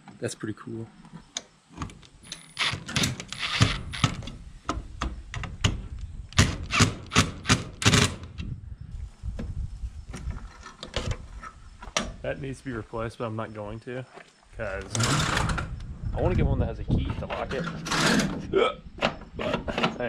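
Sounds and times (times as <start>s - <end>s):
impact driver driving screws: 2.3s - 4.3s.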